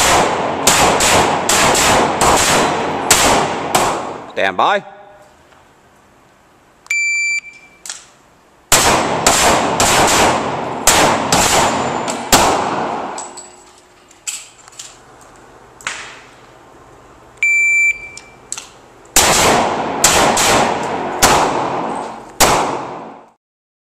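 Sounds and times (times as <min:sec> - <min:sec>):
rapid handgun shots: 0:00.0 - 0:04.3, 0:08.7 - 0:13.2, 0:19.2 - 0:23.3
shot timer beep: 0:06.9 - 0:07.8, 0:17.4 - 0:18.4.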